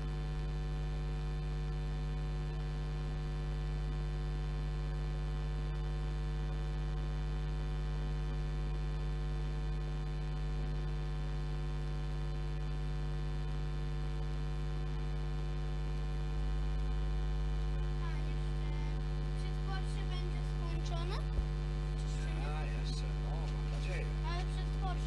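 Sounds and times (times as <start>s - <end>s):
electrical mains hum: 0.0s - 25.0s.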